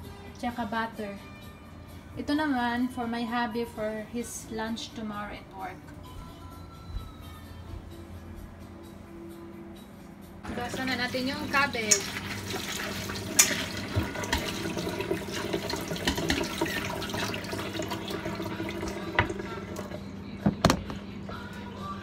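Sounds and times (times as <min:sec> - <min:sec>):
tap water running: 0:10.5 - 0:20.0.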